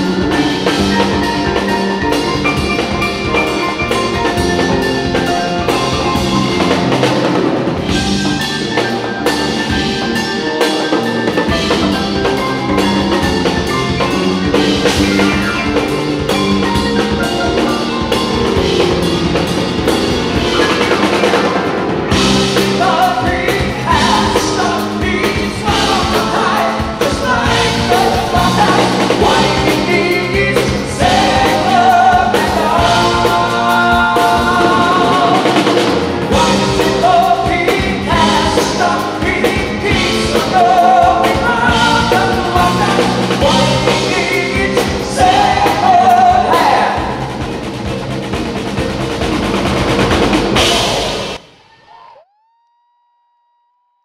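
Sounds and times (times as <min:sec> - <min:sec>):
bass guitar: 0:00.0 - 0:51.4
grand piano: 0:00.0 - 0:51.5
drums: 0:00.0 - 0:52.3
male lead vocal: 0:22.2 - 0:47.4.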